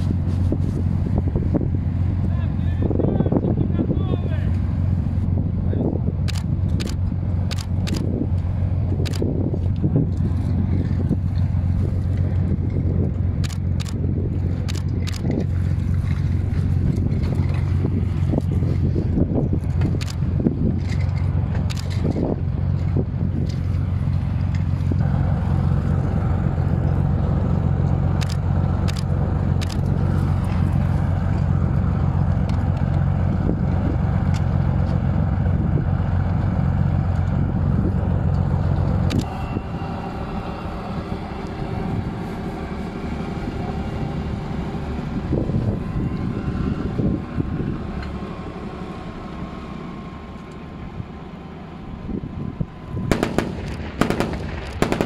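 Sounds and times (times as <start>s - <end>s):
diesel engine running: 0.0s - 55.0s
scattered clicks: 6.2s - 11.5s, 13.4s - 17.7s, 19.6s - 23.8s, 28.1s - 31.5s, 39.0s - 39.3s.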